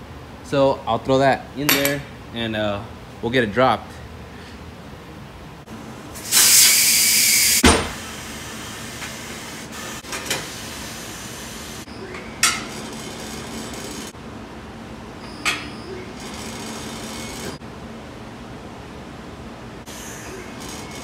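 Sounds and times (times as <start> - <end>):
compressed air hissing: 6.2 - 11.9.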